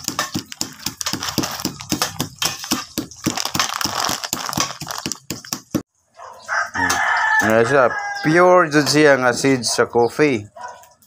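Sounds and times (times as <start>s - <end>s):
coffee beans crushed in mortar: 0.0s - 5.8s.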